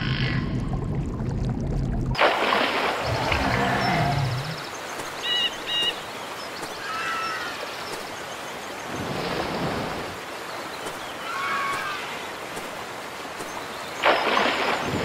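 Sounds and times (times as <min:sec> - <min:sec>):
warbling bird calls: 0:02.9 - 0:09.6, 0:10.4 - 0:15.0.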